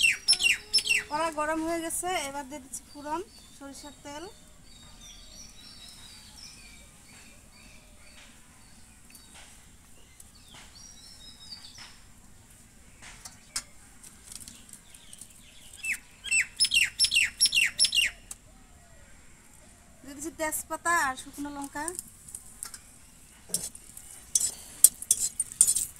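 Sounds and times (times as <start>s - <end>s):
bird downward-sliding calls: 0.0s - 1.1s, 15.8s - 18.3s
faint bird chirps: 0.0s - 1.3s, 14.6s - 20.2s.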